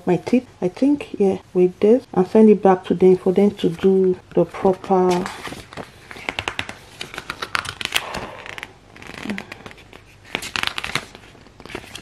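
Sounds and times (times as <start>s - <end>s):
paper pages rustling and crinkling: 3.3s - 12.0s.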